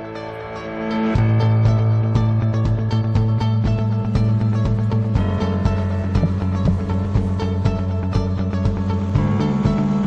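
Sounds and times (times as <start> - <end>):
background music with guitar: 0.0 - 10.0
deep bass note: 3.6 - 10.0.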